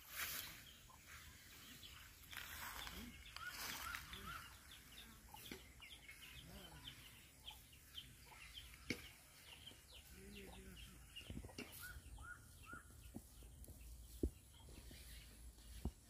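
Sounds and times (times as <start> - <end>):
grass and vines rustling: 0.0 - 10.3
low clucking bird calls: 0.1 - 16.0.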